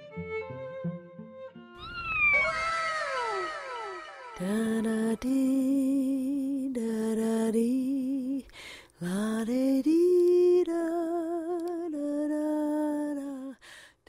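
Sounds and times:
person singing wordless lullaby: 0:04.4 - 0:13.8.

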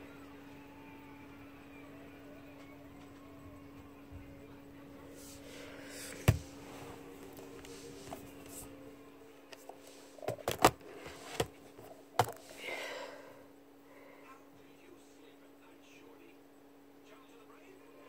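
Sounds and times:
steady low hum: 0:00.0 - 0:18.0
handling knocks and clicks: 0:09.5 - 0:12.5.

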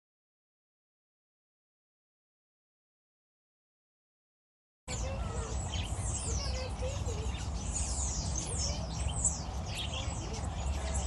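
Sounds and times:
many birds chirping: 0:04.9 - 0:11.0.

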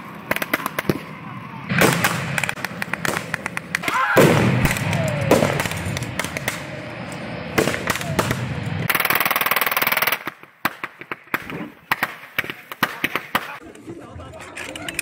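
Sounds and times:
gunshots: 0:01.7 - 0:06.7, 0:07.5 - 0:13.6
rapid machine-gun burst: 0:08.9 - 0:10.2.

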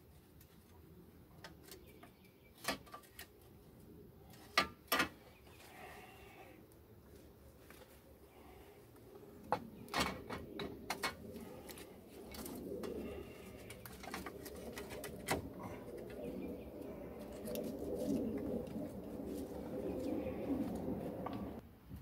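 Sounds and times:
low cooing: 0:10.3 - 0:21.6.

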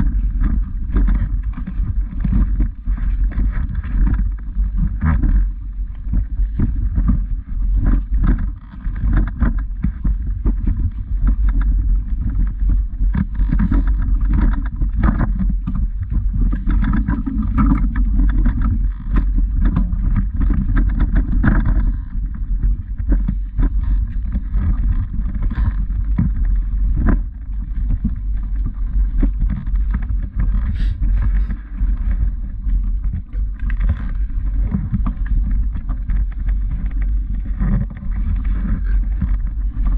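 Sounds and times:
microphone handling noise: 0:00.0 - 0:39.9
wind rumble: 0:00.0 - 0:39.9.

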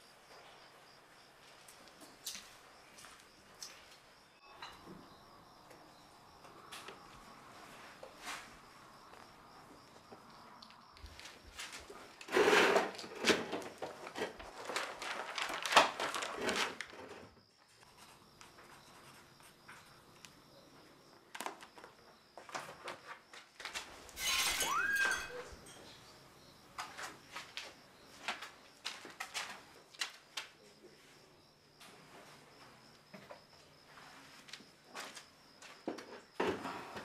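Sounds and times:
short rising squeak: 0:24.2 - 0:25.6.

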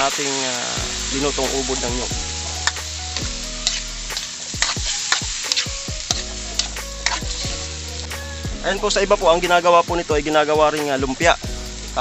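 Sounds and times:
food sizzling in a frying pan: 0:00.0 - 0:12.0
metal spoon scraping a pan: 0:02.5 - 0:08.5.

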